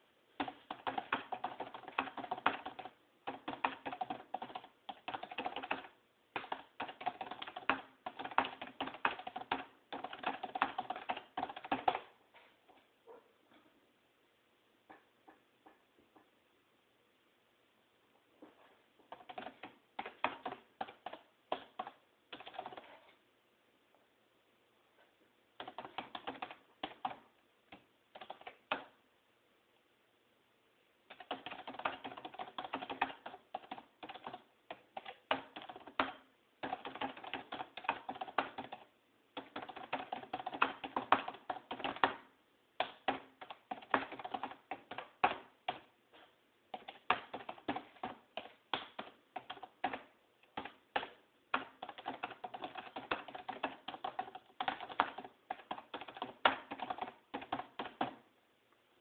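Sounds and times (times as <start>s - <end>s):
fast typing on keyboard: 0.4s - 12.1s, 19.1s - 23.0s, 25.6s - 28.9s, 31.1s - 45.9s, 46.7s - 58.2s.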